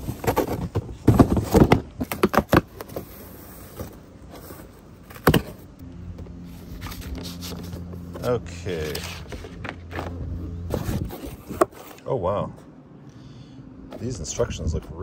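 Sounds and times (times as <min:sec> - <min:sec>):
cardboard box knocks and scrapes: 0:00.0 - 0:05.6.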